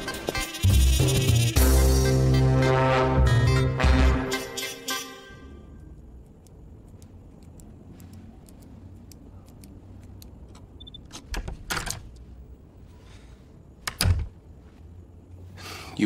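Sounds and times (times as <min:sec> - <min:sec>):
low steady hum: 0:05.2 - 0:16.0.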